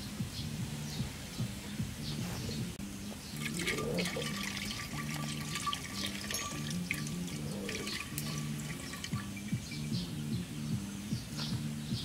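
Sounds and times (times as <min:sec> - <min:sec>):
background music: 0:00.0 - 0:12.0
water pouring into clay pot: 0:03.4 - 0:10.1.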